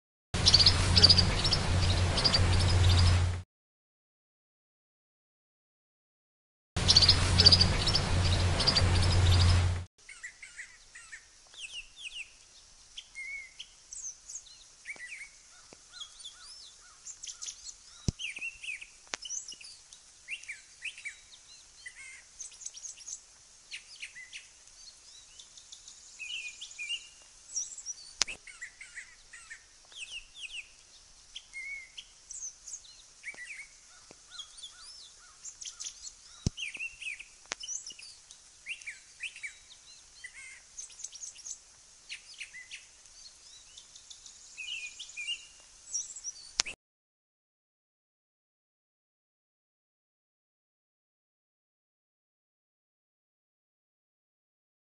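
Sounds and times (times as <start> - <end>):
bird singing quick chirping phrases: 0.4 - 3.3, 6.8 - 12.3, 43.6 - 46.8
sharp clicks: 28.2 - 28.4, 46.6 - 46.8.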